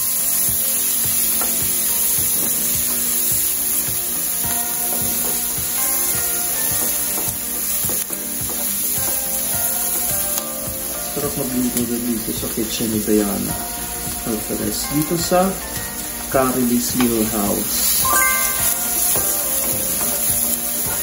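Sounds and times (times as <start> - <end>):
background music: 0.0 - 21.0
food sizzling in a frying pan: 0.0 - 21.0.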